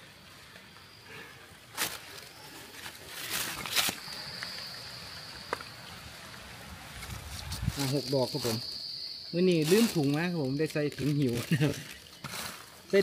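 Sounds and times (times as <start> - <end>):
high insect drone: 0.0 - 13.0
fingers scraping through soil and leaves: 1.8 - 4.6, 9.4 - 13.0.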